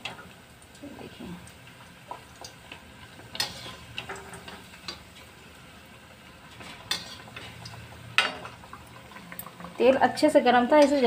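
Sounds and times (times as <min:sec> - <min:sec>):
faint oil sizzle: 0:00.0 - 0:11.0
metal skimmer scraping a pan: 0:03.3 - 0:05.0, 0:06.5 - 0:08.6, 0:10.7 - 0:11.0.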